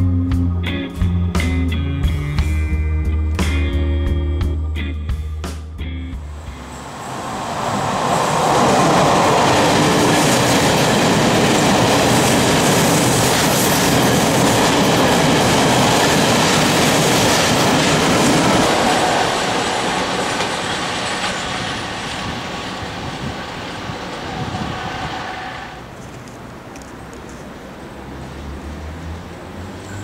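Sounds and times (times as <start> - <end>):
electric train passing: 6.2 - 26.0
train wheels on rails: 6.3 - 27.5.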